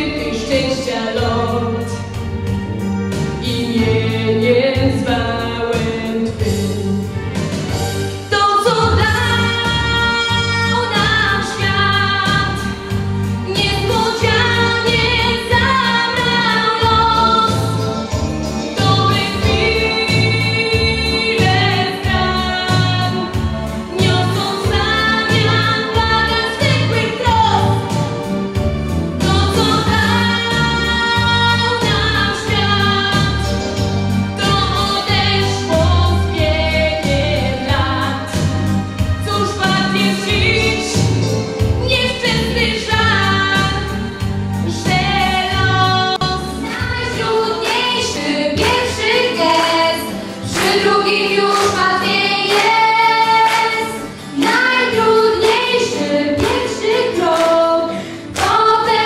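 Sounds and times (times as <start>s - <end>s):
instrumental backing music: 0.0s - 59.0s
girl singing into microphone: 8.3s - 12.7s, 13.5s - 17.8s, 23.9s - 27.8s, 29.3s - 33.5s, 44.7s - 59.0s.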